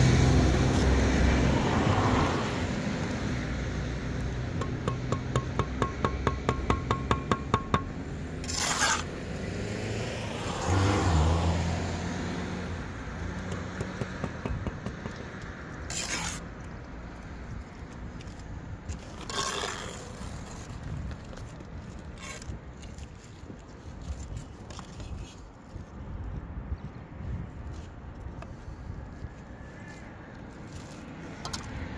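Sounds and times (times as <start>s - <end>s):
trowel scraping on brick: 4.5s - 9.3s, 13.5s - 16.7s, 18.2s - 23.2s.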